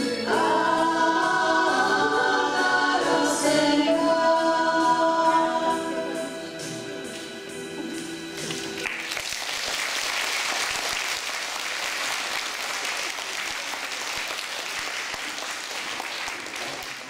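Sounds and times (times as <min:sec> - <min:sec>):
women's choir singing: 0:00.0 - 0:07.1
audience applauding: 0:08.4 - 0:17.0.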